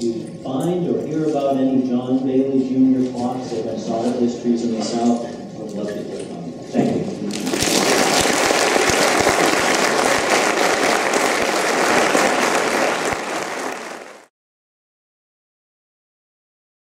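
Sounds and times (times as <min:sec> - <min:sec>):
audience applauding: 0:07.3 - 0:14.3.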